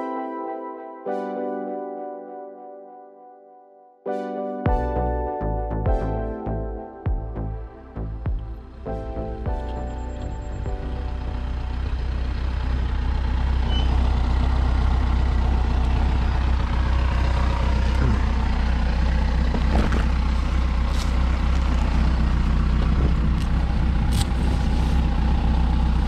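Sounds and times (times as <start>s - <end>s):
motorcycle engine idling: 7.1s - 26.0s.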